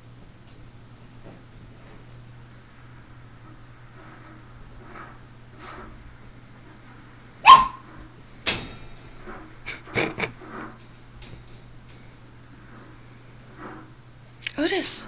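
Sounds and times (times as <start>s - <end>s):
puppy barking: 7.4s - 7.9s.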